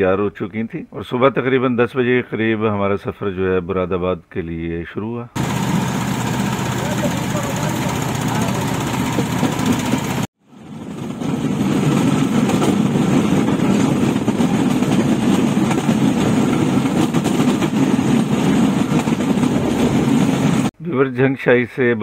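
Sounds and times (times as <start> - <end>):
engine drone: 5.4 - 20.7
wheels on rails: 5.4 - 20.7.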